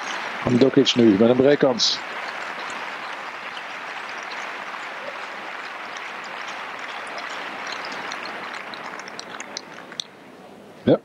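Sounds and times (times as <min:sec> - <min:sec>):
crowd applauding: 0:00.0 - 0:10.2.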